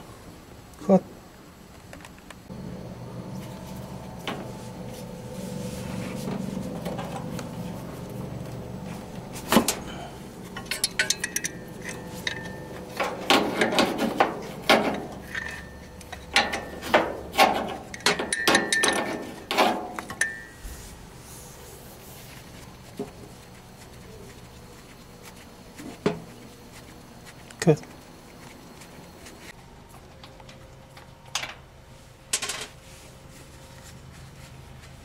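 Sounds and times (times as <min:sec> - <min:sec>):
low steady hum: 0:00.0 - 0:35.0
wrench clanking on pipe fitting: 0:10.6 - 0:20.5.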